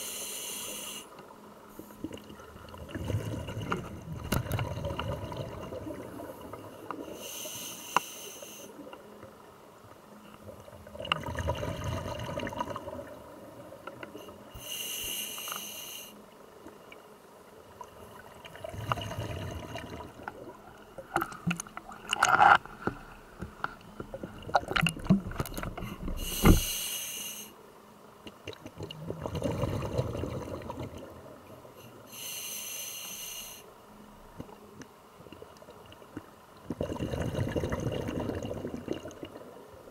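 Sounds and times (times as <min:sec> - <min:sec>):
diver breathing through regulator: 0:00.0 - 0:01.1, 0:14.5 - 0:16.2, 0:25.8 - 0:27.6, 0:32.1 - 0:33.7.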